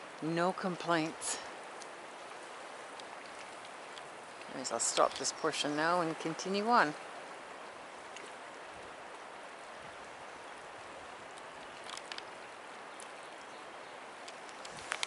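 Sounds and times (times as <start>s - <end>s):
breeze over choppy water: 0.0s - 15.0s
faint clicks: 2.9s - 5.4s, 11.3s - 13.5s, 14.2s - 15.0s.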